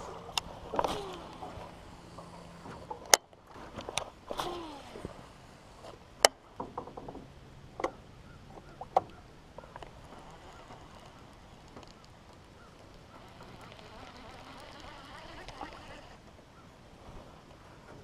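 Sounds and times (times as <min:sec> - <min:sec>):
fishing reel whir: 0:00.0 - 0:03.2, 0:03.8 - 0:06.0, 0:09.8 - 0:16.2
quick reel ticks: 0:09.8 - 0:16.2
fishing reel clicks: 0:10.1 - 0:16.2.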